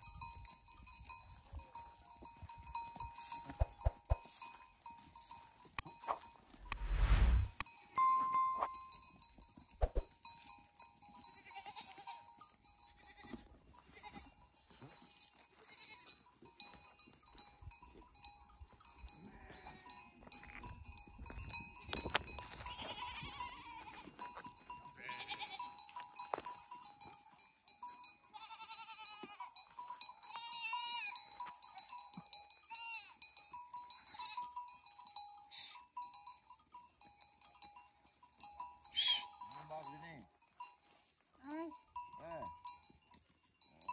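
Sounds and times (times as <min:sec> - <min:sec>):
animal bells clinking: 0:00.0 - 0:06.7, 0:07.6 - 0:43.9
sheep and goats bleating: 0:11.2 - 0:16.7, 0:19.1 - 0:20.8, 0:21.4 - 0:26.0, 0:28.1 - 0:34.8, 0:35.5 - 0:35.9, 0:38.9 - 0:40.4.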